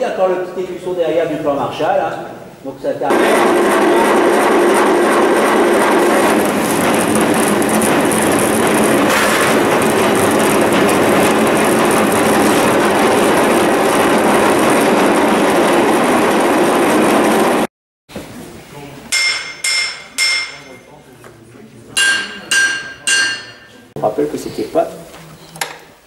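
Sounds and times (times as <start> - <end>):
machine rattling clatter: 3.1 - 17.7.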